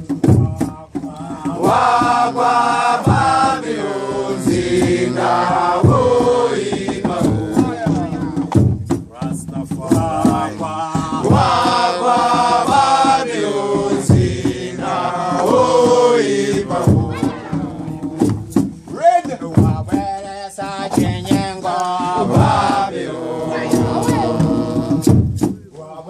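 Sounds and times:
low heavy beat: 0.0 - 25.8
group of voices chanting: 1.1 - 8.6, 9.9 - 18.4, 20.6 - 25.1.

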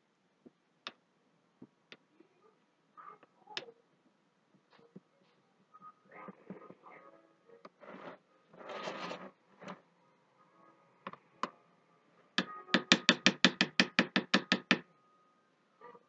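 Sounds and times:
fork scraping plastic: 7.8 - 9.8
plastic fork clicking on soap mold: 12.8 - 14.8.

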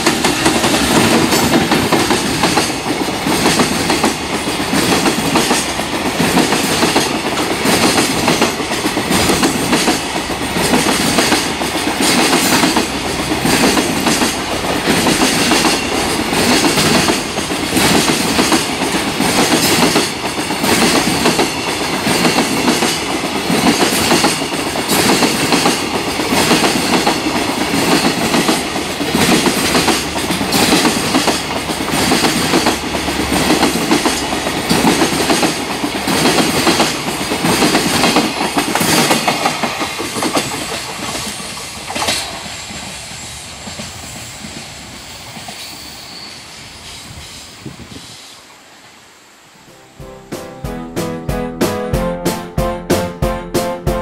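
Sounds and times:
freight train wheels clacking: 0.0 - 46.0.

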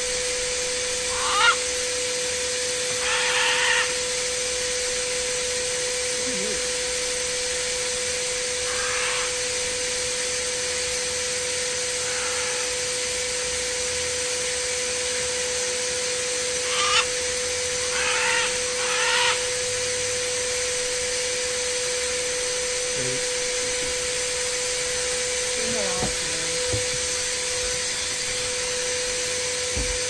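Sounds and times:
snow machine blower humming: 0.0 - 30.0
wavering high-pitched calls: 0.9 - 1.7, 2.8 - 4.2, 8.4 - 11.0, 11.9 - 12.9, 16.5 - 20.6.

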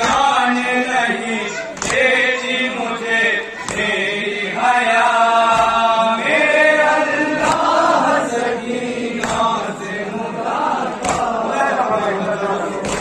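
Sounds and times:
man chanting through microphone: 0.0 - 7.4
hands slapping chests: 1.8 - 2.1, 7.4 - 7.8, 9.2 - 9.6, 11.0 - 11.4.

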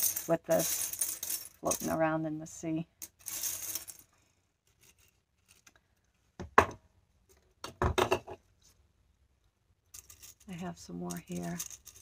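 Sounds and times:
shells clinking and rustling: 0.0 - 2.1, 3.0 - 5.8, 9.9 - 12.0.

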